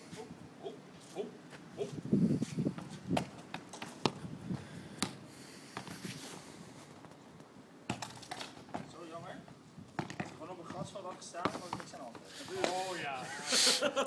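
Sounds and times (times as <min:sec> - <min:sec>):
footsteps: 0:09.9 - 0:13.0
football taps on brick paving: 0:10.0 - 0:12.8.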